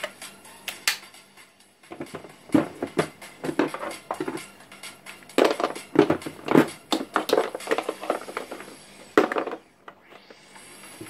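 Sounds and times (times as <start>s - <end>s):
hard plastic knocking and clattering: 1.9s - 4.5s, 5.4s - 9.6s.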